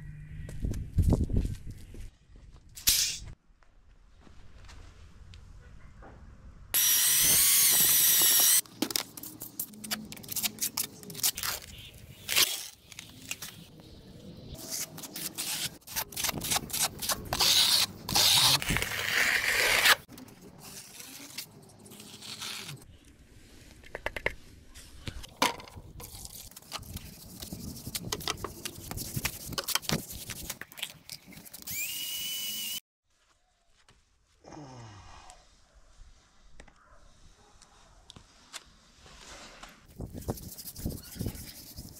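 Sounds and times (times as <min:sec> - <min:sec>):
power tool whine: 0:06.8 - 0:08.6, 0:31.7 - 0:32.8.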